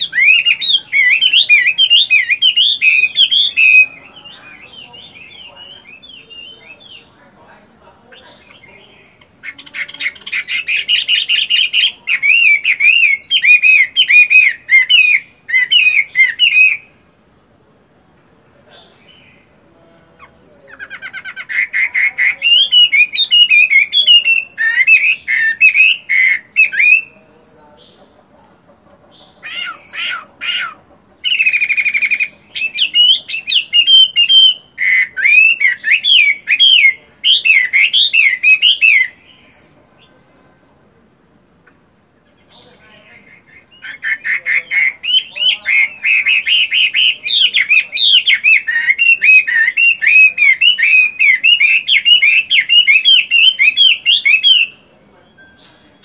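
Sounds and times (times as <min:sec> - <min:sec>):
bird singing whistled phrases: 0:00.0 - 0:07.1, 0:08.2 - 0:16.9, 0:20.4 - 0:27.6, 0:31.2 - 0:40.5, 0:43.3 - 0:55.6.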